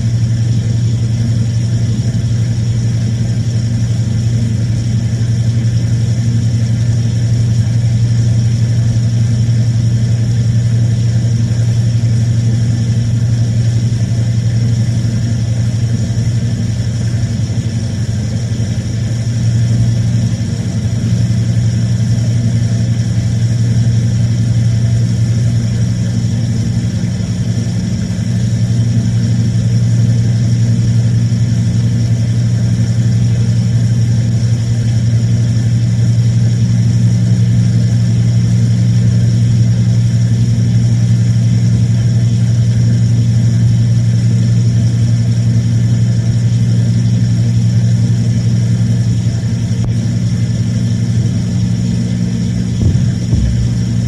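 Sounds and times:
appliance motor hum: 0:52.6 - 0:54.0.

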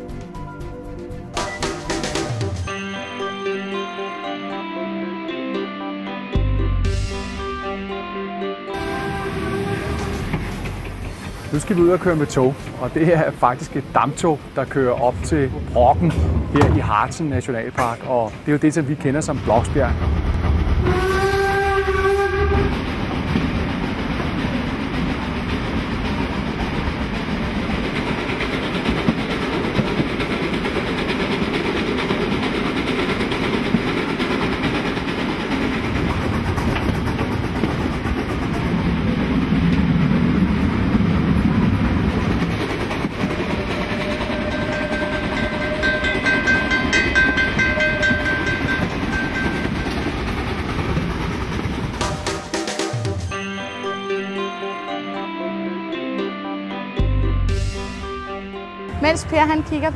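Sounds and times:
steam train running on rails: 0:00.0 - 0:04.8, 0:08.7 - 0:55.6, 0:57.4 - 0:59.9
steam locomotive whistle: 0:08.7 - 0:11.7, 0:20.8 - 0:22.9, 0:43.7 - 0:45.9.

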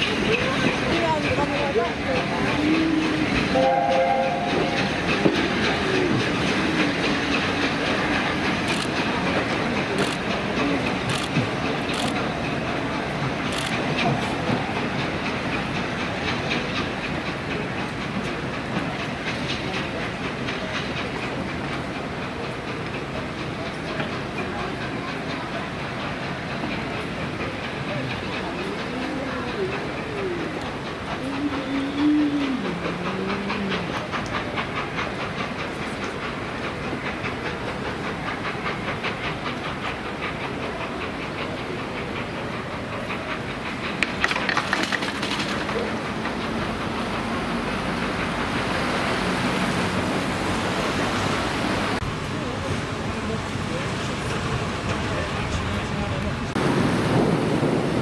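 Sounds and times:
hiss of steam: 0:00.0 - 0:44.2
train coaches rumbling on track: 0:00.0 - 0:58.0
locomotive whistle: 0:03.5 - 0:04.8.

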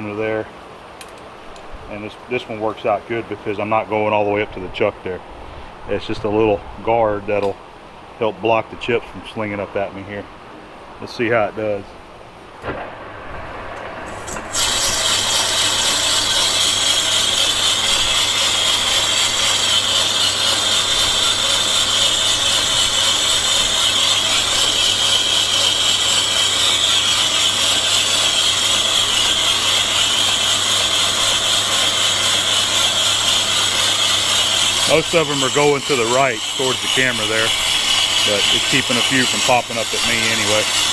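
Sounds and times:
lathe low hum: 0:11.8 - 0:40.9
lathe tool cutting metal ringing: 0:14.2 - 0:40.9.

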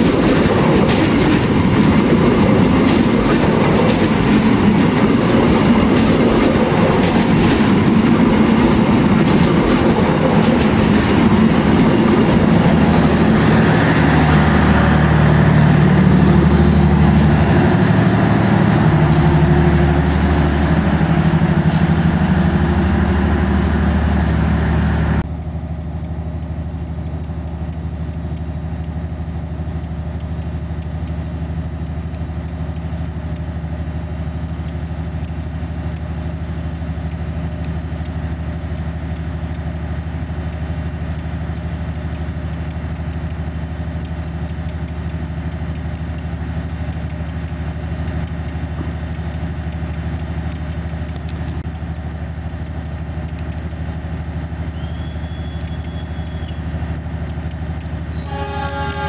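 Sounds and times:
train diesel engine idling: 0:00.0 - 0:59.0
cricket chirping: 0:25.2 - 0:59.0.

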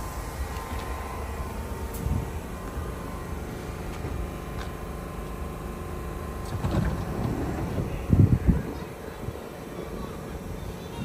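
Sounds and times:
train equipment humming: 0:00.0 - 0:11.0
low rumble: 0:06.4 - 0:09.4.

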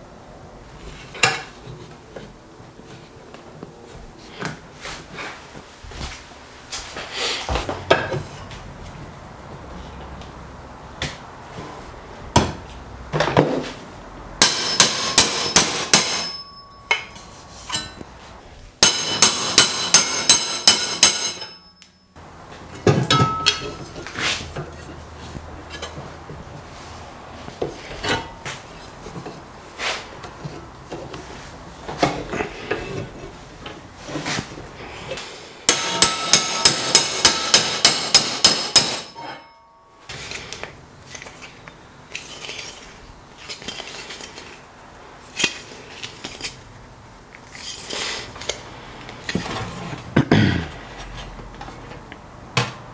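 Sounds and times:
hammer tapping metal strip: 0:14.4 - 0:18.0, 0:18.8 - 0:22.0, 0:35.7 - 0:39.2.

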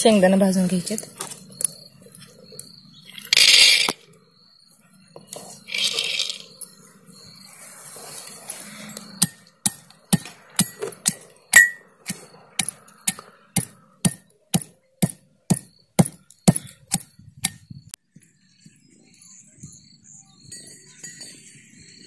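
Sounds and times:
pestle pounding in metal mortar: 0:12.6 - 0:17.0.

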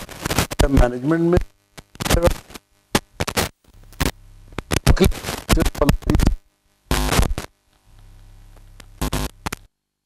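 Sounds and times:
man speaking in garbled fragments: 0:00.6 - 0:01.5, 0:04.9 - 0:06.4.

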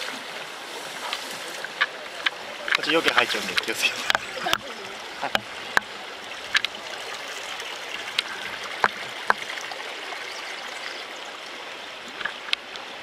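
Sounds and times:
river water running over stones: 0:00.0 - 0:13.0
water pouring: 0:02.6 - 0:12.6.

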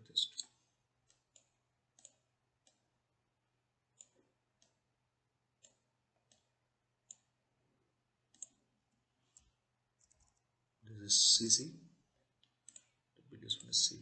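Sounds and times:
faint computer mouse clicks: 0:01.1 - 0:02.8, 0:05.6 - 0:06.5, 0:08.3 - 0:08.6, 0:12.4 - 0:13.0.

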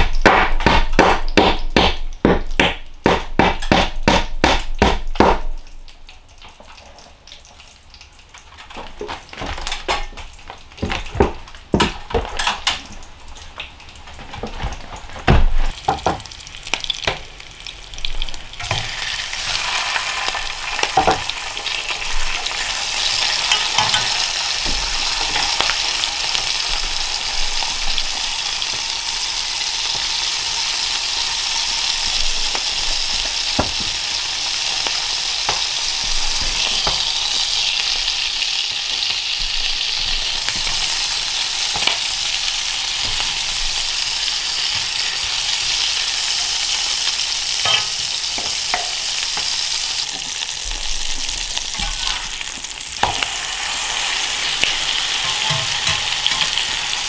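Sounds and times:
food sizzling in frying pan: 0:00.0 - 0:57.0
utensil scraping pan: 0:54.6 - 0:57.0.

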